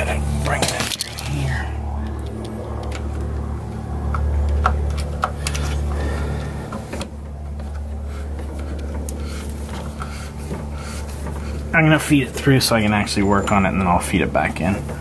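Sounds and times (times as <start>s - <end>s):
low machine hum: 0.0s - 15.0s
cable clicks and rubbing: 0.4s - 11.7s.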